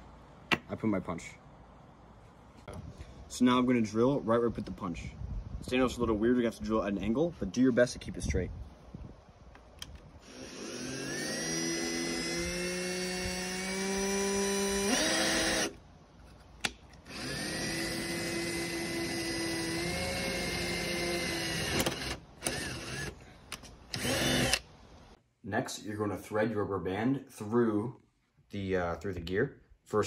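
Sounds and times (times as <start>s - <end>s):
drill motor whining through metal: 10.2s - 15.8s, 17.0s - 23.2s, 23.9s - 24.6s.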